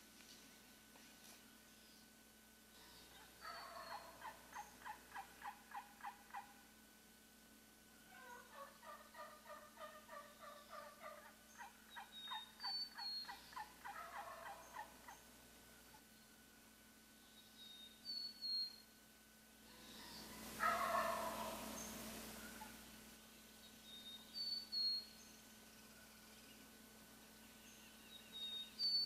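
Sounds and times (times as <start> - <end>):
turkey call yelps: 2.8 - 6.7, 8.1 - 15.2, 19.8 - 21.8, 22.4 - 22.8
wild turkey gobbling: 2.8 - 6.7, 8.1 - 16.0, 19.7 - 22.9.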